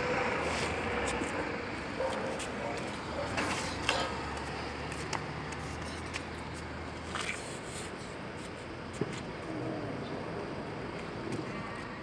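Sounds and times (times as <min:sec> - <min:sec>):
low traffic hum: 0:00.0 - 0:12.0.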